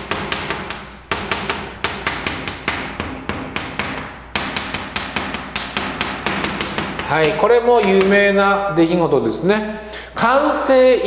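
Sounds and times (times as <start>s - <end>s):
chalk tapping on blackboard: 0.0s - 8.5s.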